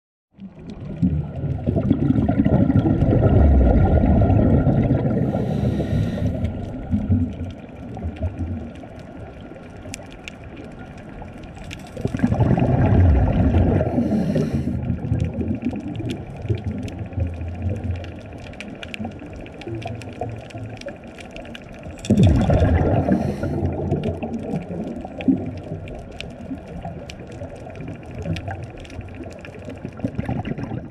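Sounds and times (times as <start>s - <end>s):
regulator bubbles gurgling: 0.3s - 30.9s
fine crackling clicks: 5.4s - 12.9s, 13.5s - 30.6s.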